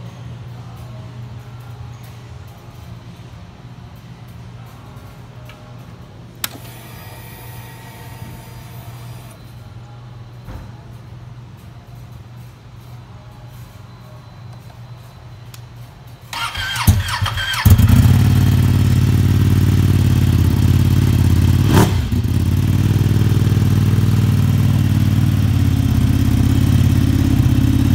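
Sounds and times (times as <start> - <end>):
electric starter whining: 6.4 - 9.4
motorcycle engine idling: 16.4 - 27.9.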